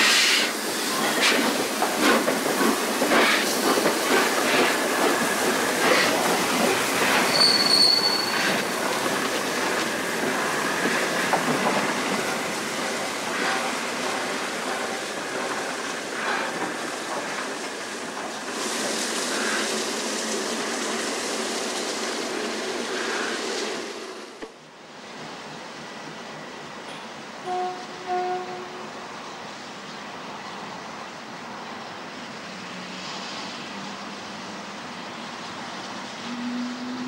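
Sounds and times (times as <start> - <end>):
steam locomotive rumbling: 0.0 - 37.0
brief high squeal: 7.3 - 8.5.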